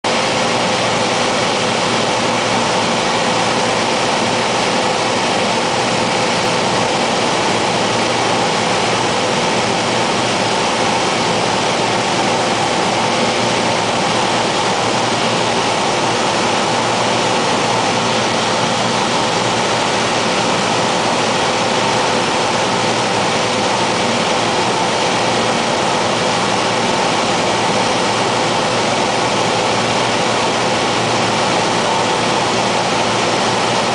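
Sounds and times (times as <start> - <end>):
propeller plane engine drone: 0.1 - 33.9
steady hum tones: 0.1 - 33.9.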